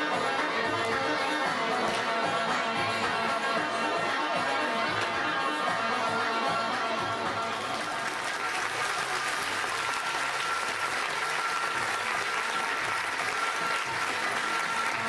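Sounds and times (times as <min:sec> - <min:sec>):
faint music: 0:00.0 - 0:15.0
audience clapping: 0:07.5 - 0:15.0.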